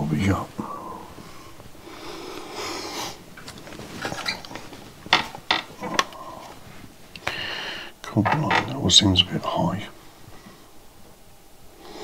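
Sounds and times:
rustling: 0.0 - 7.5.

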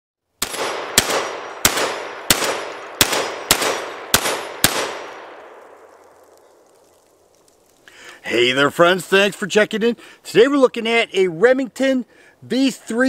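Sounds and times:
shotgun shots fired rapidly: 0.4 - 5.2.

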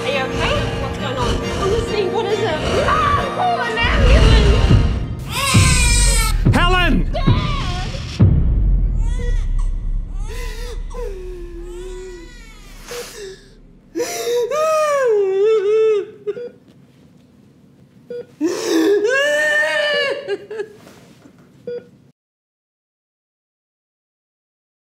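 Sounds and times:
woman crying and wailing: 9.4 - 16.6, 18.1 - 20.8.

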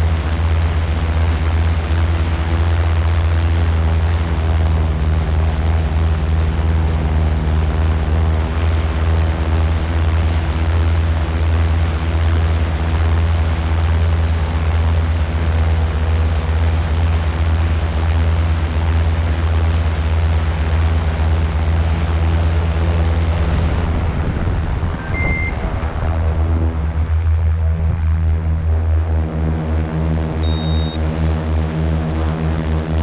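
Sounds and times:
drone motors humming: 0.0 - 33.0
high beep: 25.0 - 25.6, 30.4 - 31.6.

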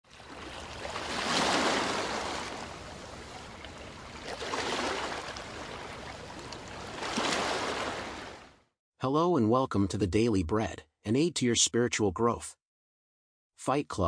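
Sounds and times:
waves washing in: 0.0 - 8.6.

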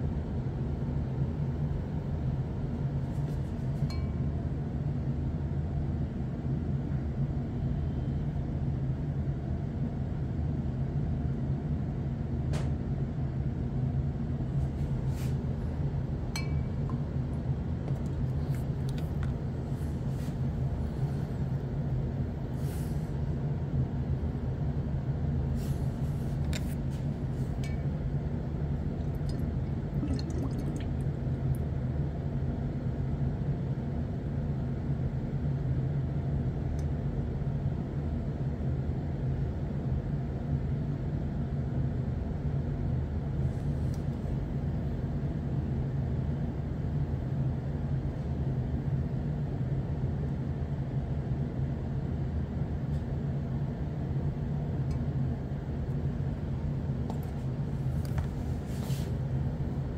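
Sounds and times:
steady low hum: 0.0 - 59.9
glass clinks and water drips: 16.4 - 16.7, 30.0 - 30.9.

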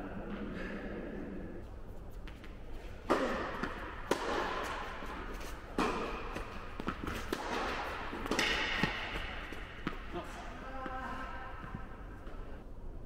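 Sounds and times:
tennis balls struck by rackets: 2.3 - 11.0.

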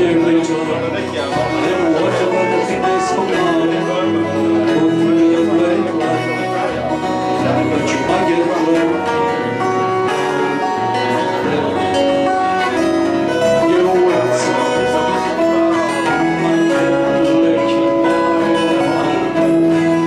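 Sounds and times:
acoustic guitars playing: 0.0 - 20.0
violin long notes: 0.0 - 20.0.

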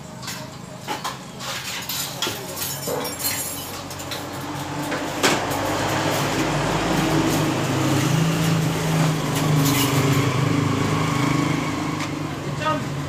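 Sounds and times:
metal trays and utensils clinking: 0.2 - 6.4, 9.0 - 10.3
engine hum: 3.2 - 13.0.

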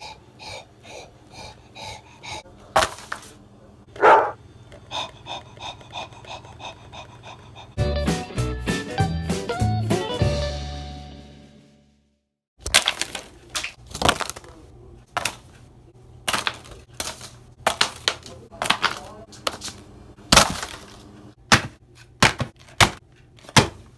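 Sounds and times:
cards clattering on a desk: 16.3 - 19.8.

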